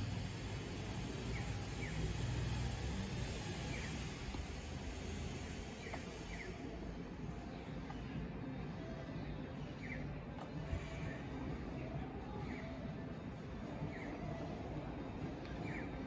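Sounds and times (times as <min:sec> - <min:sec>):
low vehicle engine rumble: 0:00.0 - 0:16.0
bird chirps: 0:01.1 - 0:06.8, 0:09.6 - 0:11.2, 0:13.8 - 0:14.6, 0:15.5 - 0:16.0.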